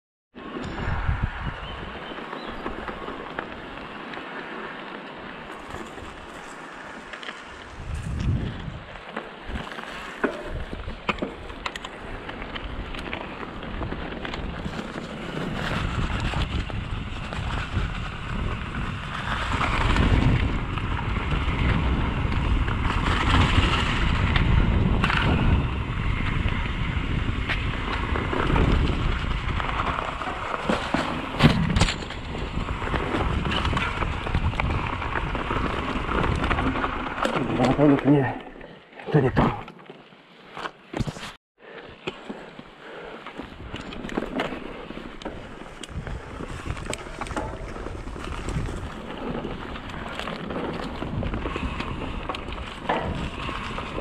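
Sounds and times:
bike tyres rumbling over dirt: 0:00.4 - 0:54.0
wind on microphone: 0:00.6 - 0:03.0, 0:07.6 - 0:09.7, 0:13.7 - 0:30.6, 0:31.2 - 0:37.6, 0:43.5 - 0:54.0
bike clicks and knocks: 0:05.3 - 0:38.6, 0:41.9 - 0:54.0.

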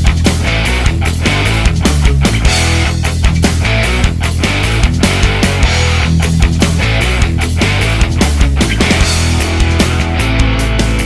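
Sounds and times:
distorted guitar: 0:00.0 - 0:11.0
drum beat: 0:00.0 - 0:11.0
rock music: 0:00.0 - 0:11.0.

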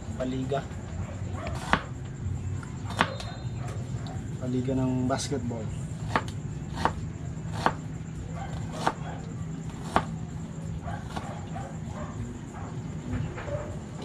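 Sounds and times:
knife chopping onion on board: 0:01.4 - 0:01.9, 0:02.8 - 0:03.2, 0:06.0 - 0:07.9, 0:08.5 - 0:09.0, 0:09.7 - 0:10.2, 0:11.0 - 0:11.3.

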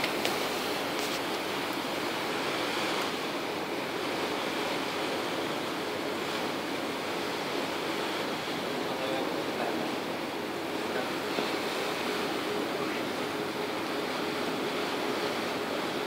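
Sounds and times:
wind and water rushing: 0:00.0 - 0:16.0.

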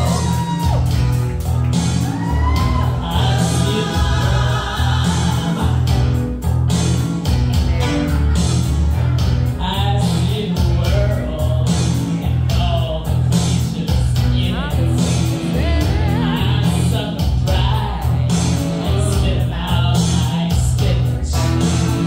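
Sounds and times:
pulsing bass line: 0:00.0 - 0:22.0
person singing with vibrato: 0:02.4 - 0:06.2, 0:09.6 - 0:22.0.

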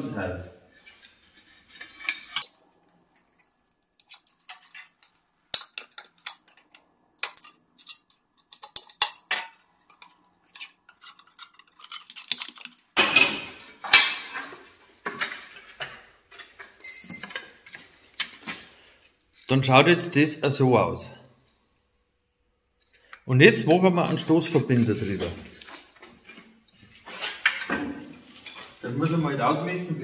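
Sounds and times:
sheet metal rasping scrapes: 0:00.7 - 0:02.5
metallic clicks and clinks: 0:02.0 - 0:13.0, 0:16.8 - 0:17.6.

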